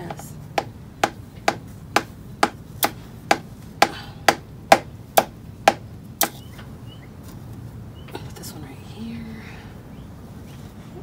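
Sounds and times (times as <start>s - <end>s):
sharp knocks: 0.0s - 6.4s.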